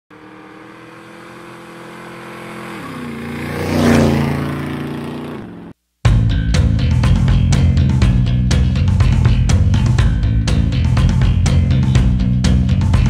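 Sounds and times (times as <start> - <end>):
vehicle engine passing by: 0.1 - 5.8
music with drums and guitar: 6.0 - 13.0.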